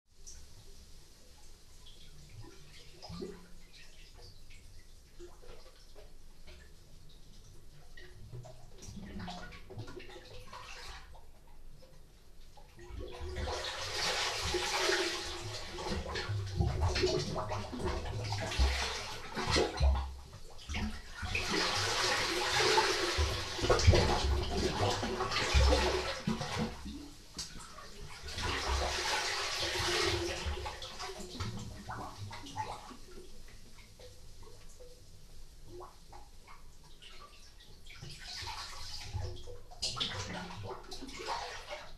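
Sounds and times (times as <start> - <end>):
water sloshing and gurgling: 0.2 - 41.9
sea water surging in rock cave: 13.2 - 20.3, 20.9 - 32.1.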